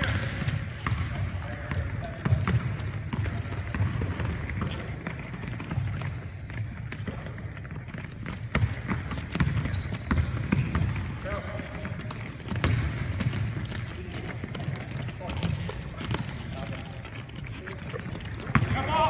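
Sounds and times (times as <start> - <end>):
sneakers squeaking: 0.0 - 19.0
basketball bouncing on hardwood: 7.9 - 11.1, 11.8 - 13.8, 18.5 - 18.8.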